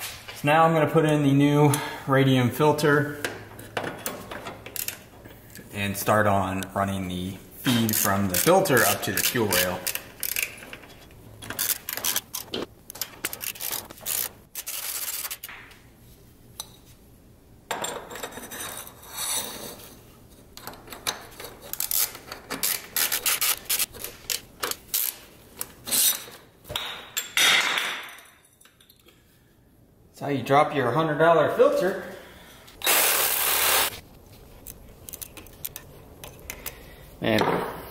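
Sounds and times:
metal parts scraping underbody: 0:07.7 - 0:15.5.

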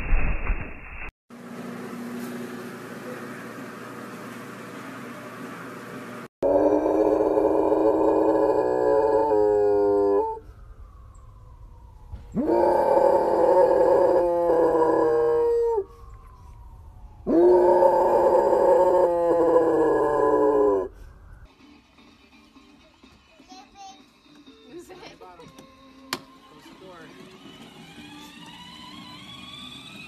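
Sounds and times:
dog howling: 0:06.4 - 0:10.4, 0:12.3 - 0:16.1, 0:17.2 - 0:21.0.

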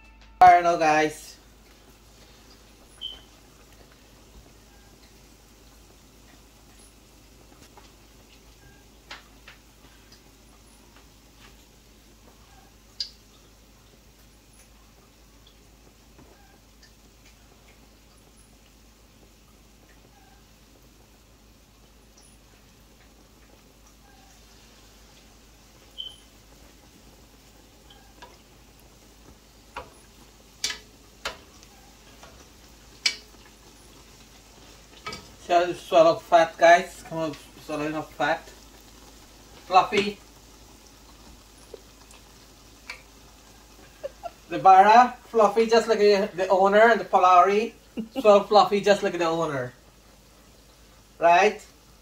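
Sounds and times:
oil sizzling faintly: 0:00.0 - 0:52.0
faint hiss of frying: 0:00.4 - 0:52.0
oil spattering and popping: 0:25.8 - 0:35.5, 0:37.2 - 0:44.5.

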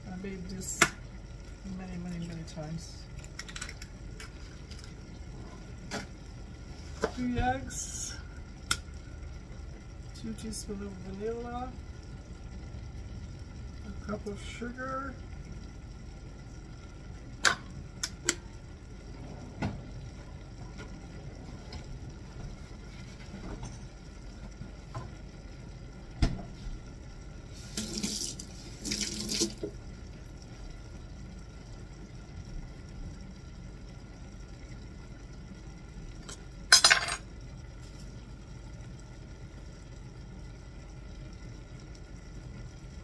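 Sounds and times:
low hum: 0:00.0 - 0:43.0
running water bursts: 0:27.5 - 0:29.9.

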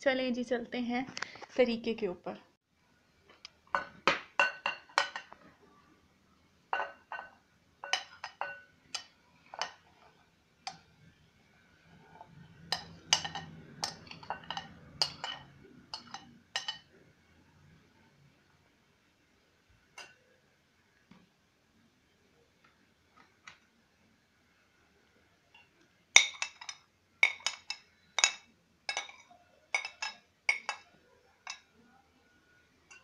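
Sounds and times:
metal spoon clinking on glass bowls: 0:03.7 - 0:05.4, 0:06.7 - 0:10.9, 0:12.1 - 0:17.0, 0:20.0 - 0:20.2, 0:25.5 - 0:31.8.

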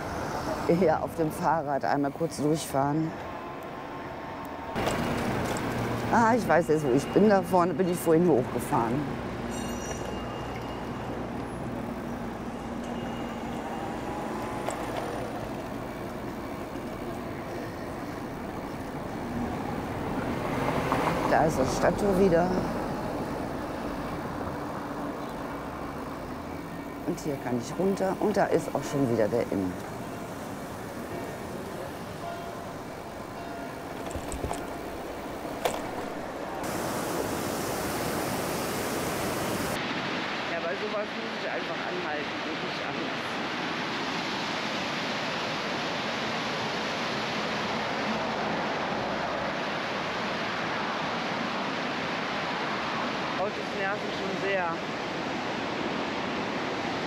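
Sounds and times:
road and traffic rumble: 0:00.0 - 0:57.0.

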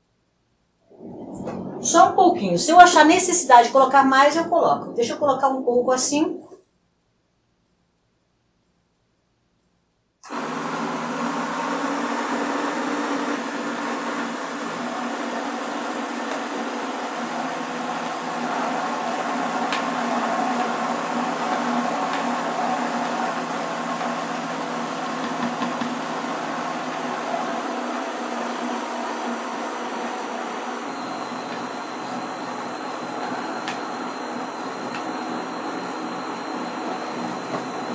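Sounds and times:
blender running: 0:10.2 - 0:37.9.

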